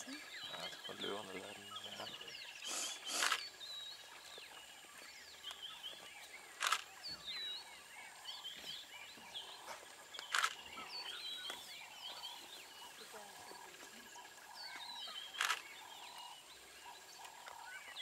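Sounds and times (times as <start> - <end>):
wild dogs twittering chirps: 0.0 - 18.0
sharp snaps: 2.7 - 3.4.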